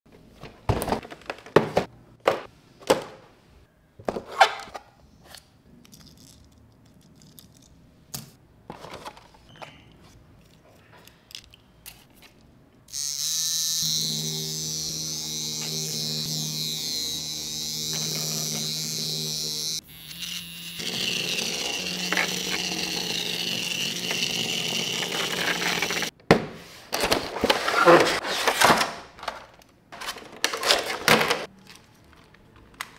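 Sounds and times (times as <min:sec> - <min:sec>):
small electric motor buzzing: 0:12.9 - 0:26.1.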